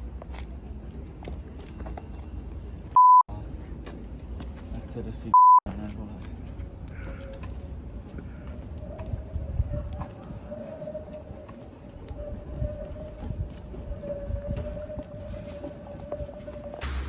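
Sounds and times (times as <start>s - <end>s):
low street background: 0.0s - 17.0s
censor bleeps: 3.0s - 3.2s, 5.4s - 5.6s.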